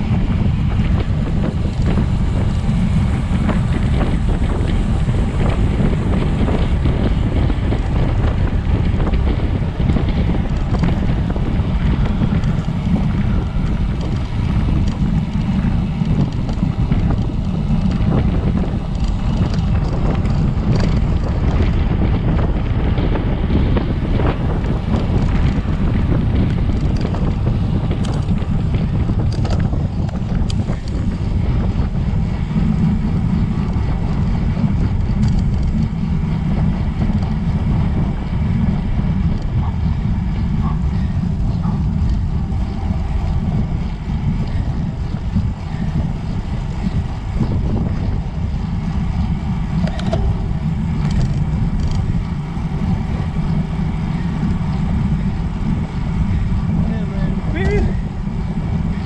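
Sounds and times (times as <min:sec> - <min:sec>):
wind buffeting microphone: 0:00.0 - 0:59.0.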